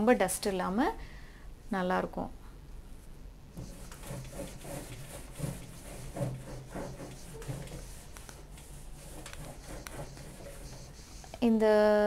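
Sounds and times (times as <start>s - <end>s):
wet wipe rubbing surface: 3.6s - 11.4s.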